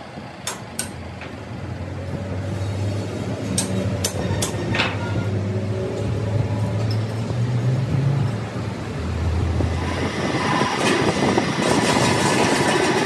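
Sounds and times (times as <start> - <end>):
sharp metallic clicks: 0.4 - 1.3
tool scraping metal: 3.5 - 5.4.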